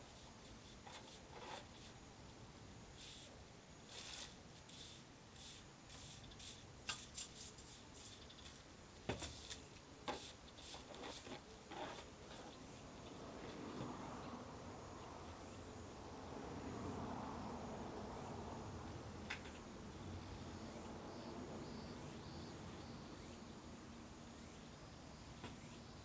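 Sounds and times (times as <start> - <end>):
hand broom sweeping floor: 3.9 - 12.5.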